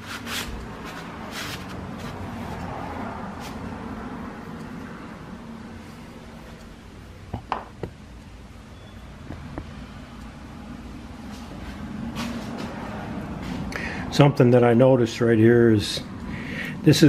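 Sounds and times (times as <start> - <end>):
sharp knocks: 7.3 - 8.0, 9.2 - 9.8.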